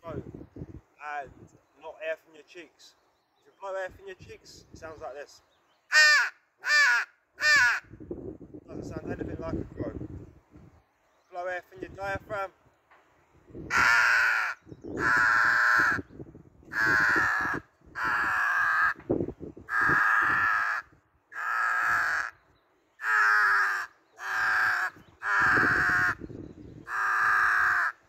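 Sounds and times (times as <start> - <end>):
crow call caws: 5.9 - 7.9, 13.7 - 16.1, 16.7 - 19.0, 19.7 - 28.0.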